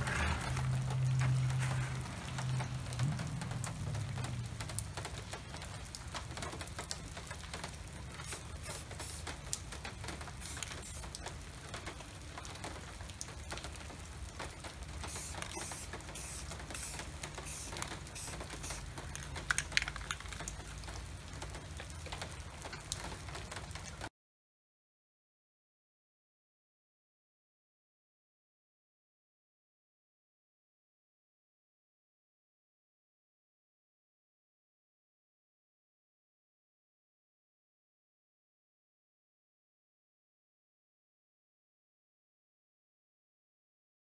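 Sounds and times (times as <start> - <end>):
steady outdoor hiss: 0.0 - 23.7
raindrops ticking on wet pavement: 0.0 - 24.1.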